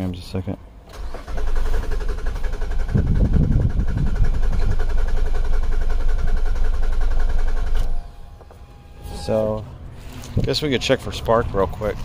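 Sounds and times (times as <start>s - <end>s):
car engine cranking on starter: 0.8s - 8.2s.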